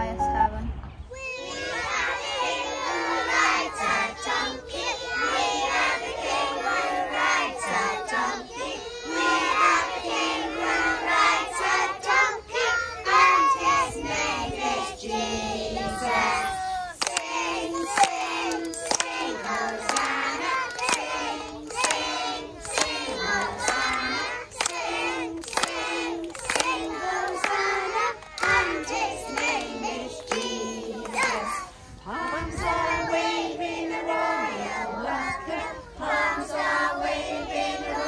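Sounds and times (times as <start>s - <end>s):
children singing in unison: 1.2s - 38.0s
children clapping hands: 17.0s - 31.5s.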